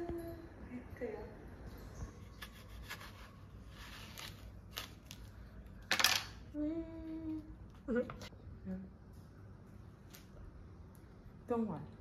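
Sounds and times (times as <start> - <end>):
knife cutting fruit: 2.2 - 5.2.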